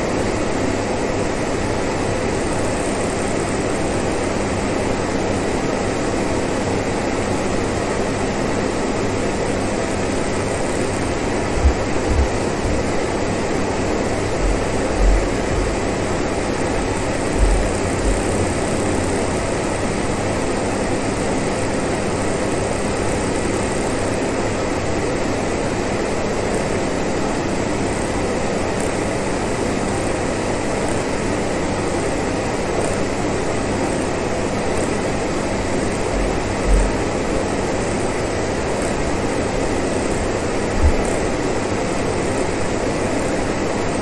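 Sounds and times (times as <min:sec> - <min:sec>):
fan heater blowing air: 0:00.0 - 0:44.0
low thumps: 0:11.6 - 0:13.0, 0:14.4 - 0:16.0, 0:16.7 - 0:18.5, 0:36.1 - 0:37.1, 0:40.8 - 0:41.1.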